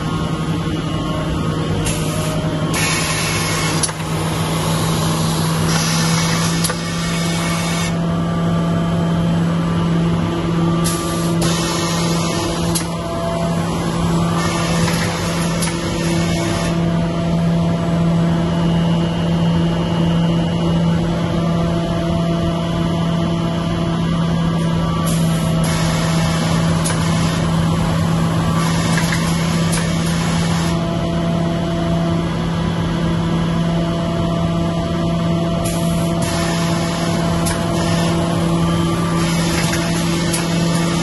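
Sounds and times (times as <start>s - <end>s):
high-pitched machine noise bursts: 1.8s - 8.0s, 10.8s - 16.9s, 25.0s - 27.7s
sewing machine motor hum: 1.8s - 8.0s, 10.8s - 16.8s, 35.7s - 41.0s.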